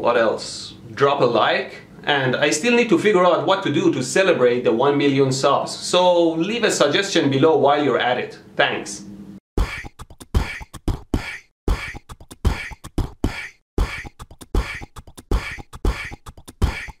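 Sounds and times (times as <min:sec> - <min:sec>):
beatbox hissing snare hits: 0:09.6 - 0:17.0
beatbox kick thumps: 0:09.6 - 0:17.0.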